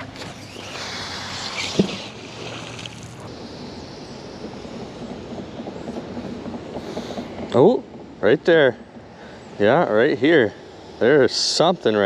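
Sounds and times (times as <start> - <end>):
water washing: 0.0 - 3.3
magnet plunking into water: 1.6 - 3.1.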